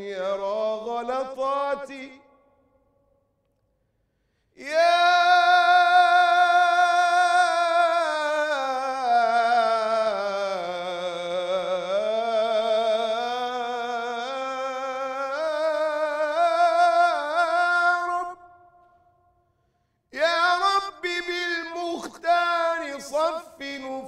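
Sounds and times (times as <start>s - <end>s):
man chanting: 0.0s - 2.4s, 4.6s - 18.7s, 20.1s - 24.0s.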